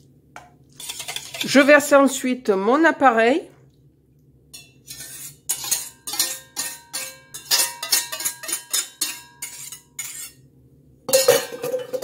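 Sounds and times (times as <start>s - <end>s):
whisk scraping metal bowl: 0.7s - 1.8s, 4.6s - 10.4s.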